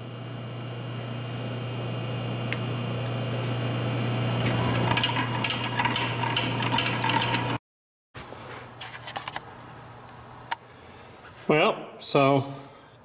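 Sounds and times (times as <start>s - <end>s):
low shop hum: 0.0s - 7.6s.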